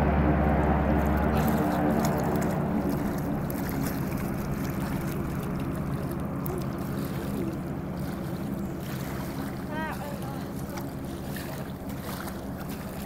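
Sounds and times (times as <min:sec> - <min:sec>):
floatplane engine and propeller droning: 0:00.0 - 0:13.0.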